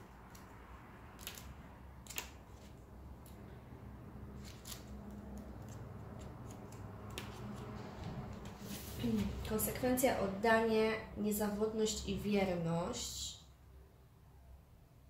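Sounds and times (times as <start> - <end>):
low room hum: 0.0 - 15.0
paper rustling: 4.4 - 9.5.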